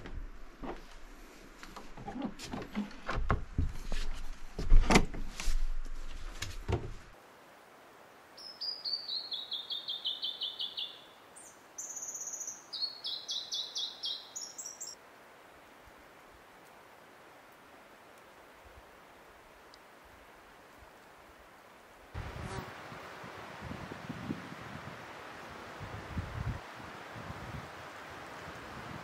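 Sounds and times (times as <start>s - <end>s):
songbird singing: 8.4s - 15.0s.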